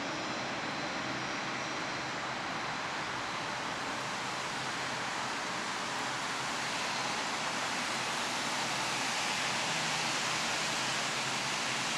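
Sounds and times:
distant jet engines at takeoff: 0:00.0 - 0:11.9.

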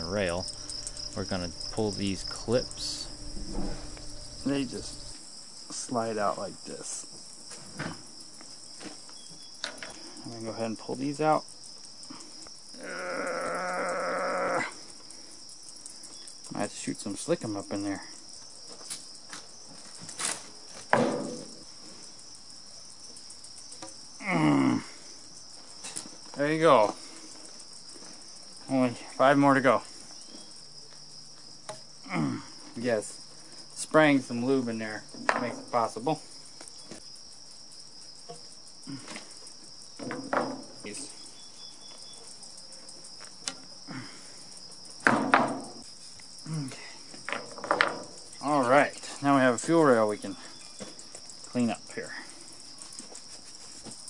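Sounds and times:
high insect trilling: 0:00.0 - 0:07.1, 0:08.2 - 0:54.0
crickets chirping: 0:00.0 - 0:54.0
short grunt-like vocal sound: 0:24.2 - 0:25.0, 0:32.0 - 0:32.6, 0:38.9 - 0:39.2, 0:46.4 - 0:47.0.

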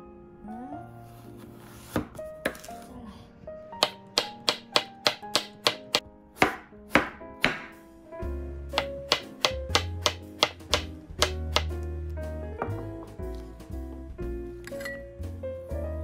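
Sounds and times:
background music: 0:00.0 - 0:16.0
knife chopping cucumber on board: 0:03.8 - 0:07.8, 0:08.7 - 0:11.8.

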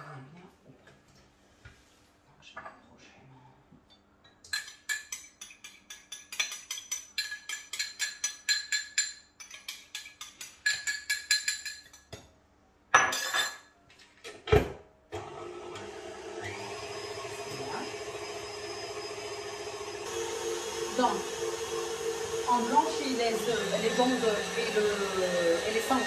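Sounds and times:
electric hand mixer running: 0:15.2 - 0:26.0.

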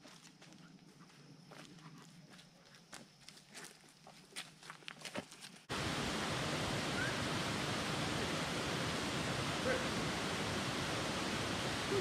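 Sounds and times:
footsteps on dirt path: 0:00.0 - 0:05.7
creek cascade rushing into pool: 0:05.7 - 0:12.0.

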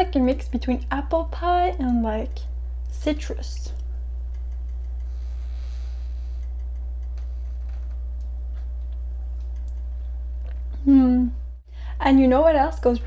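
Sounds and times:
steady low hum: 0:00.0 - 0:13.0
faint ticks: 0:03.8 - 0:05.2, 0:06.4 - 0:08.3.

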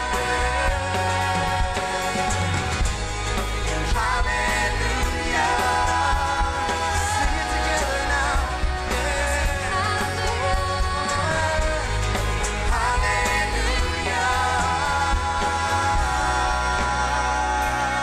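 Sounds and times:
worship band playing: 0:00.0 - 0:18.0
person singing lead: 0:03.8 - 0:18.0.

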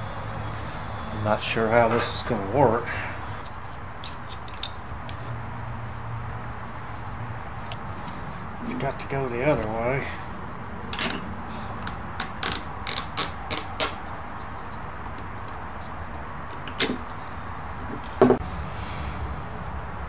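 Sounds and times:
metal tripod parts clicking: 0:03.4 - 0:05.3, 0:10.9 - 0:14.0.

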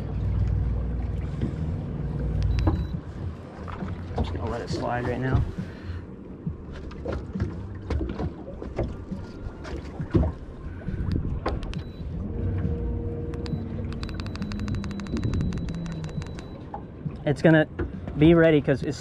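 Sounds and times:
low rumble: 0:00.0 - 0:17.2
wind: 0:00.0 - 0:19.0
fast clicks: 0:13.4 - 0:16.5.

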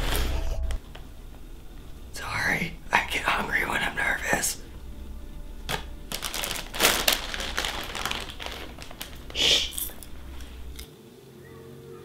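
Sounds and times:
plastic snack bag crinkling: 0:05.6 - 0:10.9.

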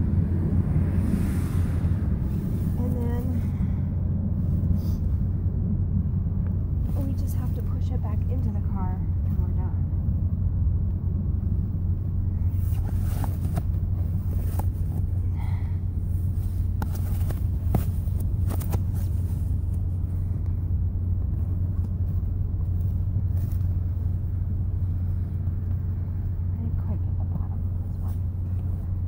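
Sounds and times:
low hum inside car: 0:00.0 - 0:29.0
sleeping bag rustling: 0:12.4 - 0:20.4, 0:21.4 - 0:24.4.

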